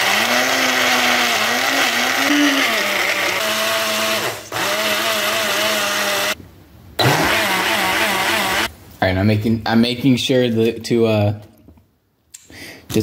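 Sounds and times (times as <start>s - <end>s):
blender motor whining: 0.0s - 6.4s, 7.0s - 8.7s.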